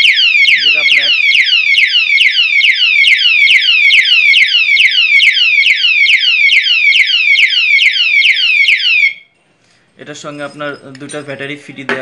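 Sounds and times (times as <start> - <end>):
alarm siren sweeps: 0.0 - 9.3.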